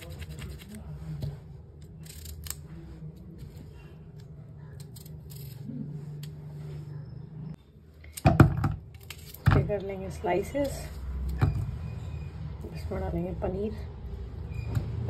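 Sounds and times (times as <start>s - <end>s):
peeler scraping cucumber skin: 0.0s - 0.8s.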